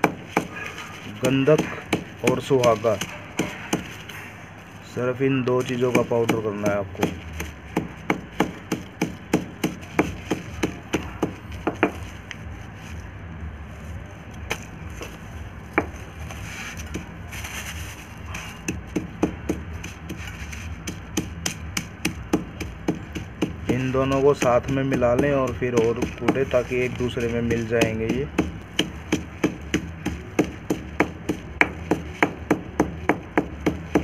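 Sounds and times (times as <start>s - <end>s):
pounder knocking crushing crystals: 1.2s - 3.9s, 5.6s - 12.0s, 18.6s - 34.0s.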